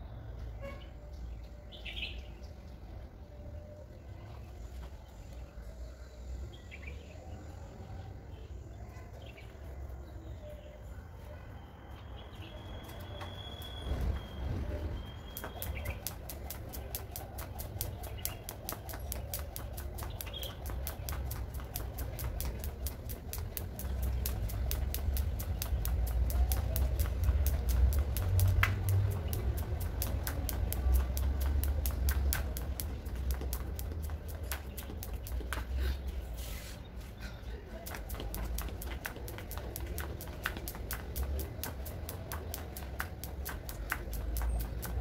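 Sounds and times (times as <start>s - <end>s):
birds chirping: 11.9s - 45.0s
skipping rope slapping ground: 15.0s - 36.4s, 37.6s - 45.0s.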